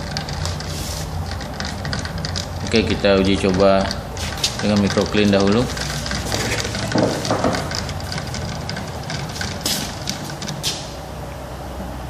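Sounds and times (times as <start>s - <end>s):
rod stirring liquid in bottle: 0.0s - 11.0s
fuel pump humming: 0.0s - 12.0s.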